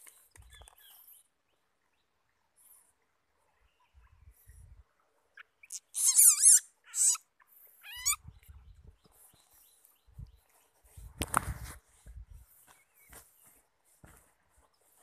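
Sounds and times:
baby civet squealing: 5.4 - 7.2, 7.8 - 8.2
soft handling bumps: 10.9 - 15.0.

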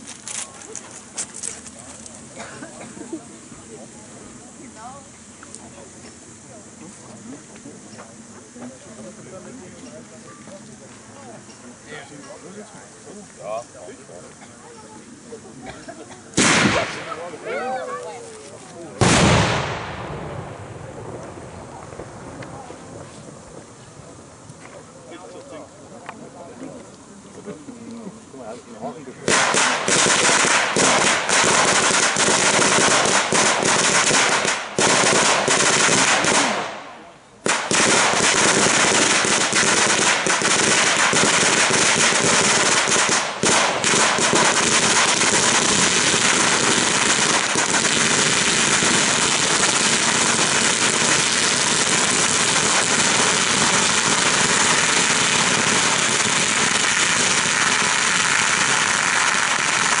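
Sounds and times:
firecrackers banging: 16.2 - 24.2, 29.2 - 60.0.

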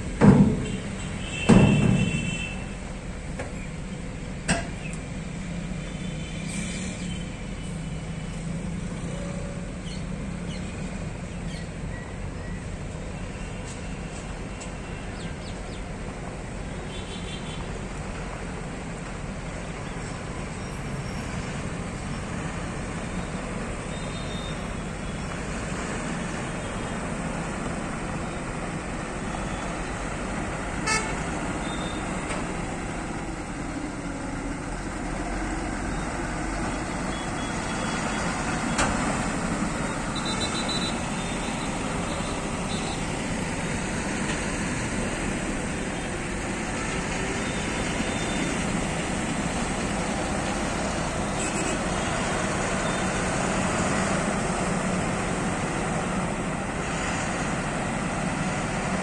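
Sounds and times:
truck diesel engine running: 21.8 - 59.0.

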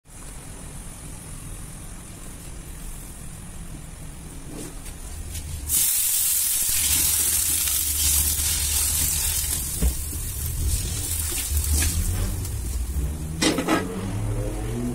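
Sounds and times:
gas burner hissing: 5.3 - 13.6.

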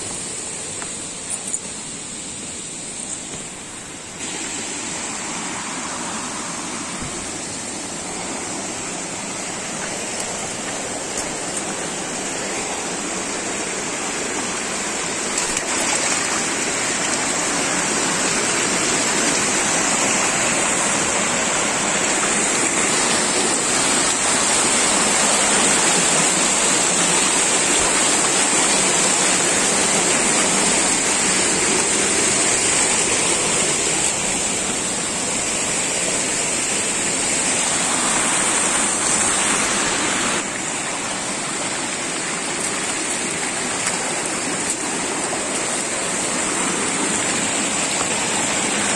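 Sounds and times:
stream rushing over boulders: 0.0 - 48.9.

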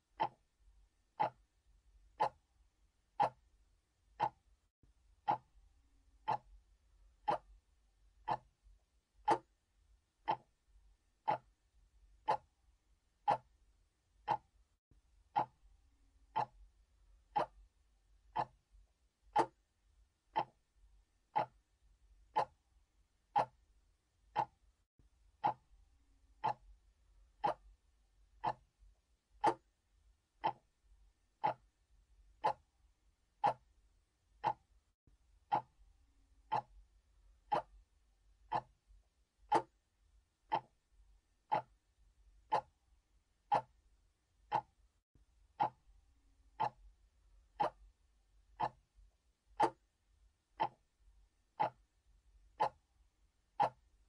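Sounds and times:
clock ticking: 0.0 - 0.5, 1.1 - 1.5, 2.1 - 2.5, 3.1 - 3.5, 4.1 - 4.5, 5.2 - 5.6, 6.2 - 6.6, 7.2 - 7.6, 8.2 - 8.6, 9.2 - 9.6, 10.2 - 10.6, 11.2 - 11.6, 12.2 - 12.6, 13.2 - 13.6, 14.2 - 14.6, 15.2 - 17.7, 18.3 - 20.7, 21.3 - 22.6, 23.2 - 24.7, 25.4 - 25.7, 26.3 - 27.8, 28.4 - 28.8, 29.4 - 29.8, 30.4 - 30.8, 31.4 - 32.7, 33.4 - 33.7, 34.4 - 34.8, 35.4 - 35.8, 36.4 - 36.8, 37.4 - 37.9, 38.5 - 38.9, 39.5 - 39.8, 40.4 - 40.8, 41.4 - 41.8, 42.4 - 42.8, 43.5 - 43.8, 44.4 - 44.9, 45.5 - 45.9, 46.5 - 46.9, 47.6 - 49.0, 49.6 - 49.9, 50.6 - 50.9, 51.6 - 51.9, 52.5 - 52.9, 53.5 - 54.0.

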